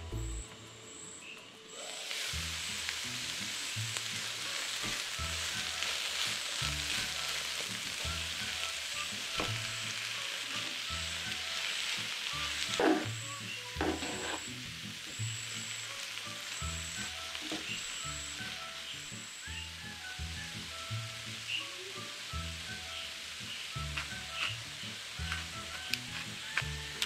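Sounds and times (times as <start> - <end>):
vegetables sizzling in oil: 0.1 - 27.0
metal spatula scraping pan: 12.7 - 13.2, 13.8 - 14.6.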